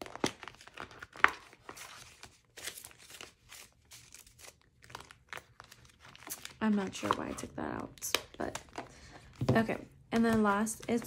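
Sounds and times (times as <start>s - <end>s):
banknotes and plastic rustling: 0.0s - 11.0s.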